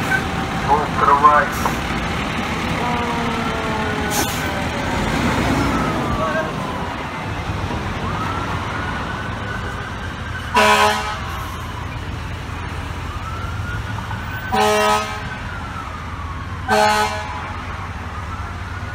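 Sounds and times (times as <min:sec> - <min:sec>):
low engine rumble: 0:00.0 - 0:10.4
fire engine siren wailing: 0:00.0 - 0:18.9.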